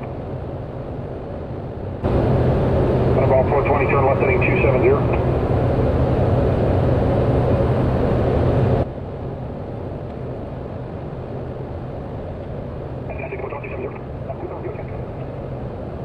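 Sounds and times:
turboprop engine drone: 0.0s - 16.0s
radio channel hiss: 3.2s - 5.2s, 13.0s - 15.4s.

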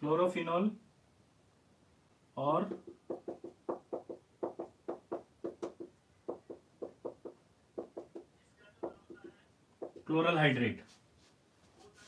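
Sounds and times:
marker squeaking on whiteboard: 5.5s - 10.1s.

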